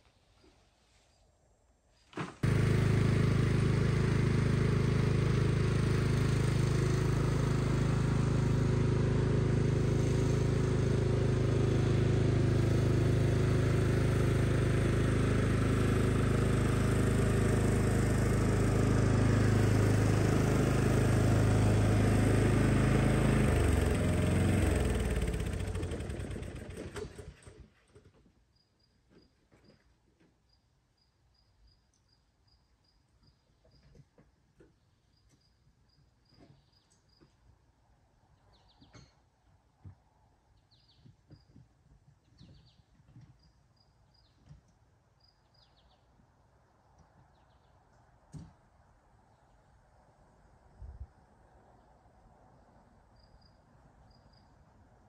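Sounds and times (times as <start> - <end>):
lawn mower engine running: 2.2 - 28.2.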